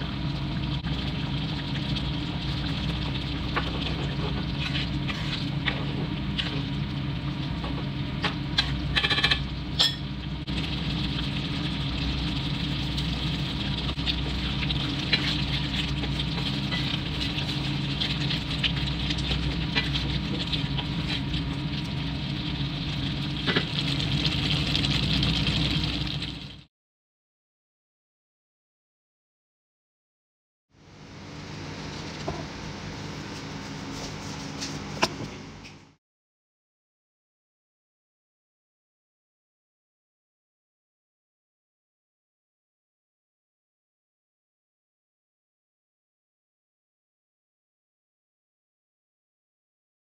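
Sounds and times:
sauce simmering and bubbling: 0.0s - 26.7s.

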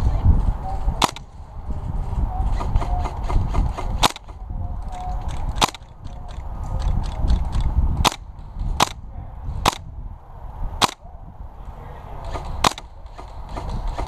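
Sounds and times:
wind rumble on microphone: 0.0s - 14.0s
airsoft rifle shots: 1.0s - 1.3s, 2.5s - 4.4s, 5.5s - 5.9s, 8.0s - 9.0s, 9.6s - 9.9s, 10.8s - 11.0s, 12.2s - 14.0s.

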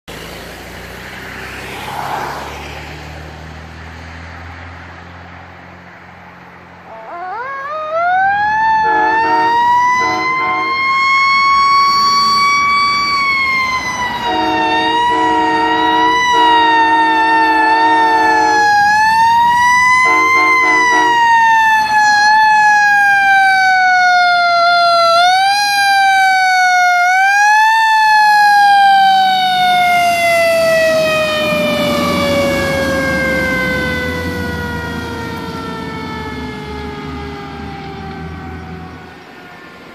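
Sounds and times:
engine rumble: 0.1s - 39.9s
fire engine siren wailing: 1.1s - 5.0s, 6.8s - 39.9s
train horn chord blasts: 8.8s - 10.8s, 14.2s - 18.6s, 20.0s - 21.2s.

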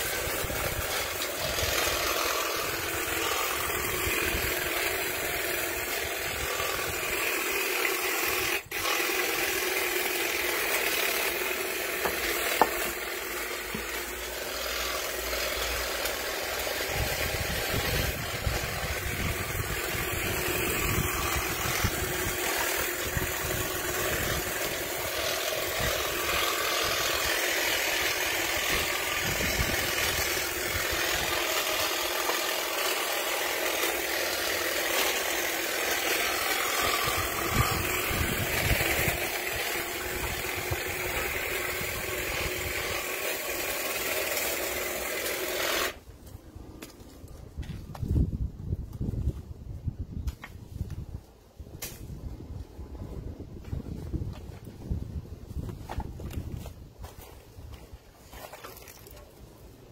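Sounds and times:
hedge trimmer cutting branches: 0.0s - 47.0s.

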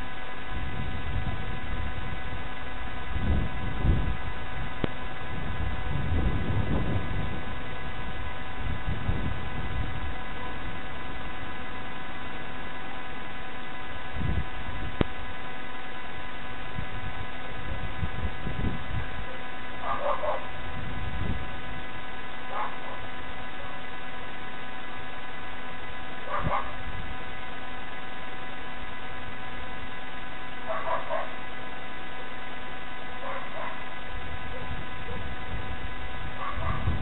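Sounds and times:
electrical hum: 0.0s - 37.0s
dog barking: 19.3s - 20.5s, 22.5s - 23.8s, 26.2s - 26.8s, 30.6s - 31.4s, 33.2s - 33.8s, 36.4s - 36.9s.

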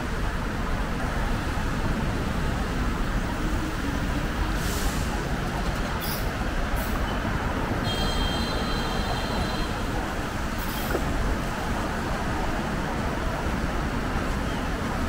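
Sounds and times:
street traffic noise: 0.0s - 15.0s
wind rumble on microphone: 9.6s - 15.0s.

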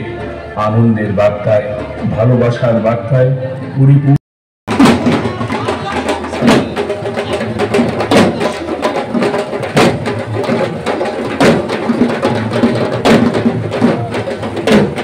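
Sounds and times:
pitched musical backing: 0.0s - 15.0s
drums beaten hard: 4.7s - 15.0s.

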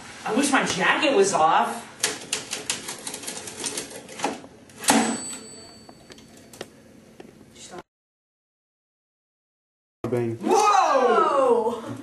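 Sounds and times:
typewriter bell ringing: 4.8s - 6.6s.

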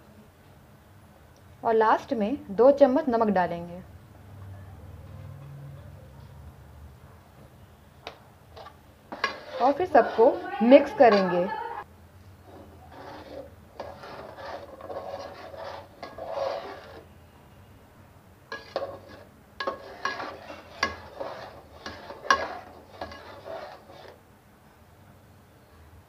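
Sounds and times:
metal spatula scraping a pot: 8.5s - 11.6s, 12.4s - 17.1s, 18.5s - 24.2s
metal clinking on pot: 18.6s - 23.8s.

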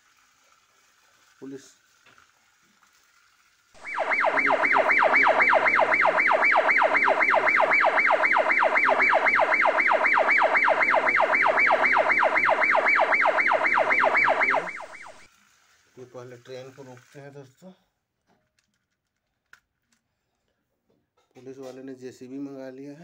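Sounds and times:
police siren yelping: 3.8s - 15.3s.

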